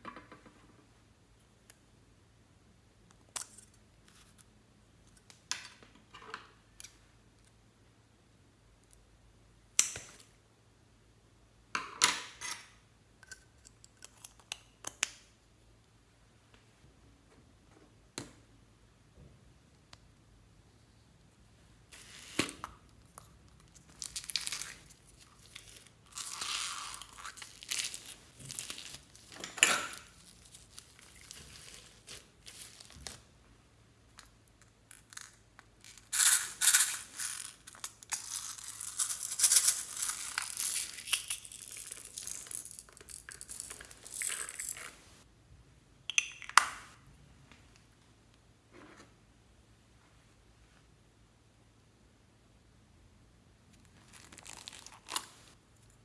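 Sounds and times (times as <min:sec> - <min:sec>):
foam beads rattling and rustling: 0:35.8 - 0:45.0.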